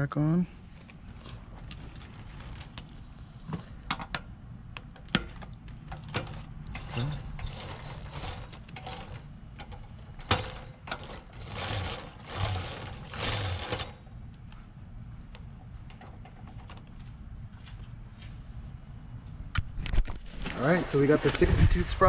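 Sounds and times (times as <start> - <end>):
metal chain clicking and rattling: 4.9 - 14.1.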